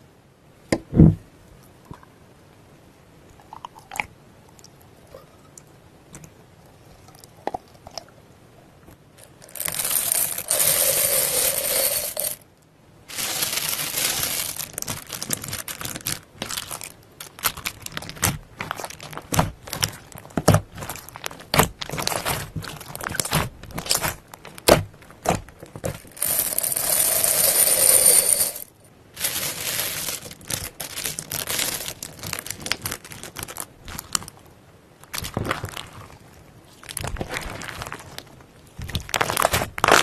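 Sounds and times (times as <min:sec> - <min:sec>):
bead-filled slime crunching: 0:09.2 - 0:12.4, 0:13.1 - 0:34.4, 0:35.1 - 0:36.2, 0:36.8 - 0:40.0
beads poured onto slime: 0:09.4 - 0:12.4, 0:13.1 - 0:16.8, 0:25.9 - 0:33.6
slime squelches: 0:35.0 - 0:40.0.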